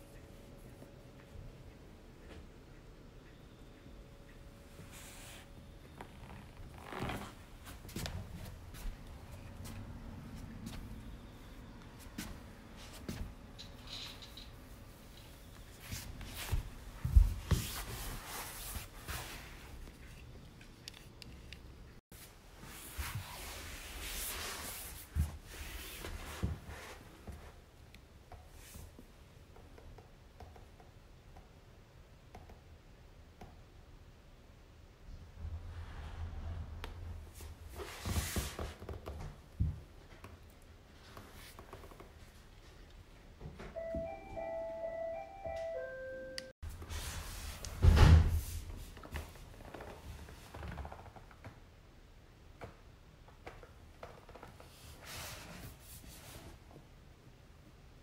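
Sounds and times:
simple tune of held notes: 0:43.7 - 0:46.6.

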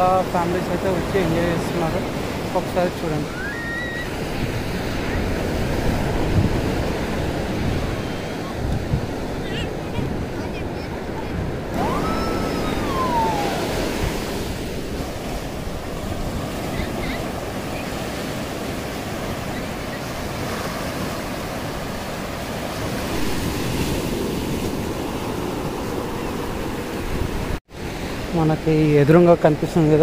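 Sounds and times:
wind on microphone: 0:00.0 - 0:28.2
waves breaking on beach: 0:00.0 - 0:30.0
brief rising and falling call: 0:11.7 - 0:14.4.

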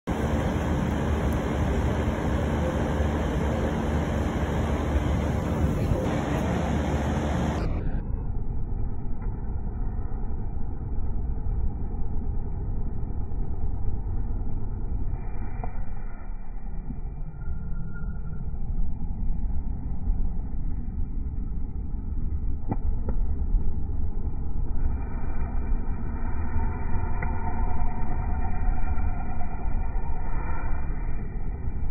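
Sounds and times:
low motor hum: 0:00.0 - 0:31.9
heater fan whoosh: 0:00.1 - 0:07.9, 0:24.7 - 0:31.9.

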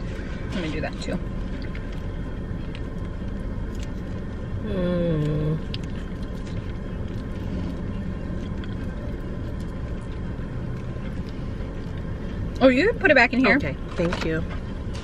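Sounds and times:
car engine rumble inside cabin: 0:00.0 - 0:15.0
person humming: 0:04.6 - 0:05.6.

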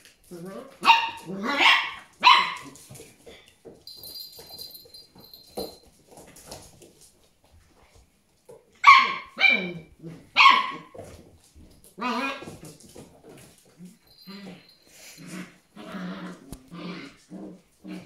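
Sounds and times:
puppy yipping: 0:00.8 - 0:02.8, 0:08.8 - 0:10.9.

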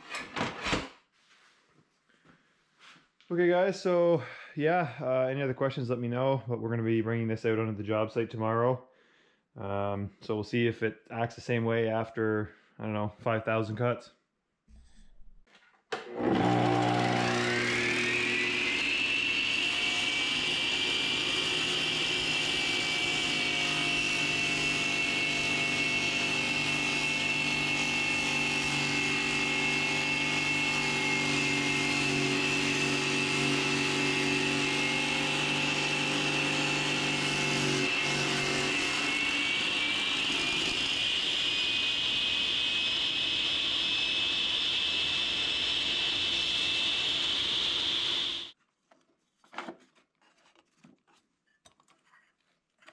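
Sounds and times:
masonry saw whining: 0:16.0 - 0:48.6.

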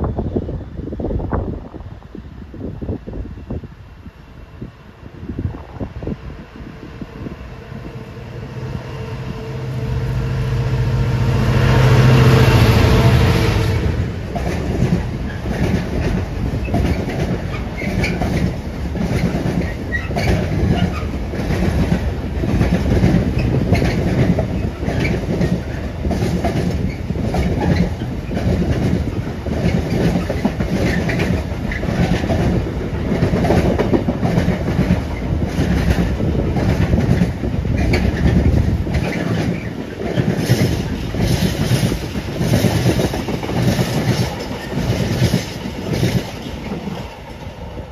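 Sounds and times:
diesel locomotive engine: 0:00.0 - 0:47.9
train wheels clattering: 0:11.8 - 0:47.9.

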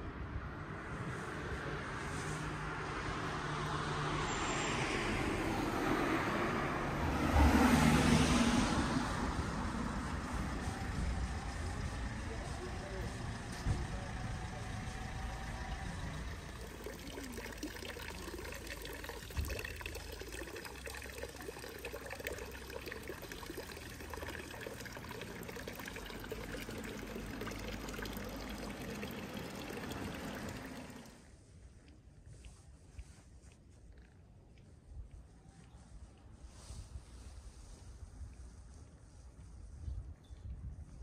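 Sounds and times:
running water pouring: 0:16.3 - 0:31.2.

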